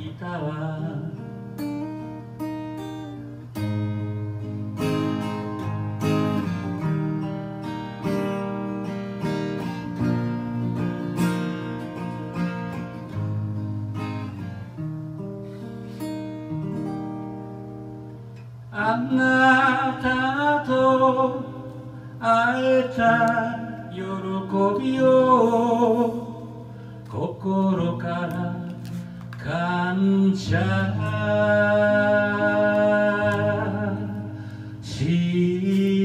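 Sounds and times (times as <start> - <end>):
man singing: 0.0 - 1.6, 18.7 - 36.0
acoustic guitar chords: 0.0 - 36.0.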